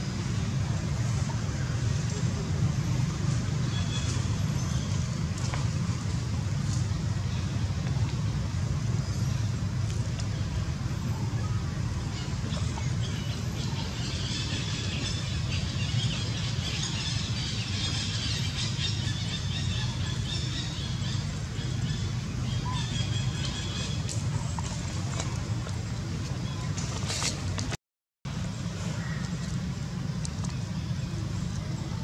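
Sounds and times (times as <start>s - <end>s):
low outdoor rumble: 0.0s - 32.0s.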